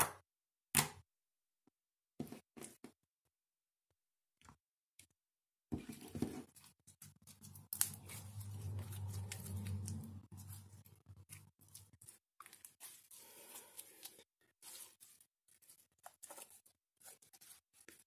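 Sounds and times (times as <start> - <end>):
slime squishing and crackling: 7.0 - 13.2.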